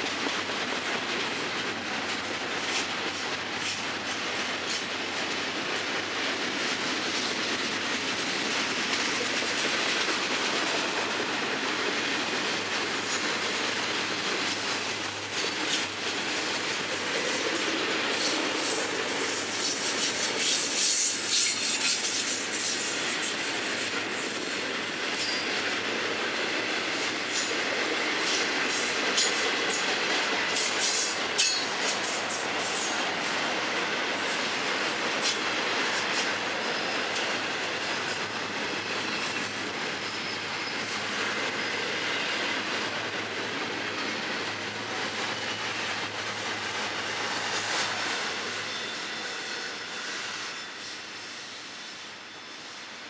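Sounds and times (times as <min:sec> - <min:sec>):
freight cars rolling on rails: 0:00.0 - 0:53.0
wheels clicking over rail joints: 0:26.8 - 0:41.0.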